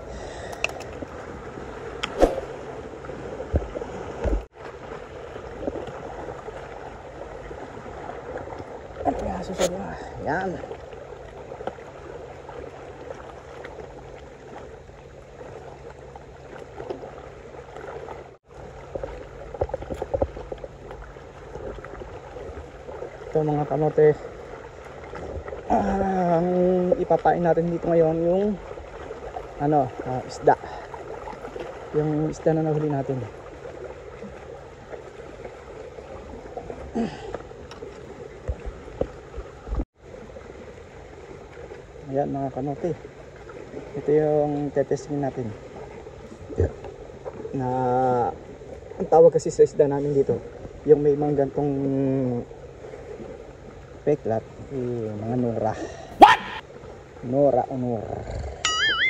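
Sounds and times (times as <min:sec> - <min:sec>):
waves lapping against rocks: 0:00.0 - 0:59.0
short falling-pitch sound: 0:58.6 - 0:59.0.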